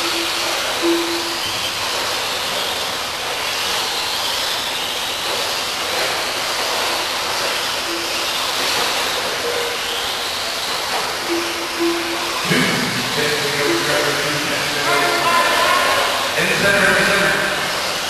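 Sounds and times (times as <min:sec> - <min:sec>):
short low beeps: 0:11.2 - 0:15.3.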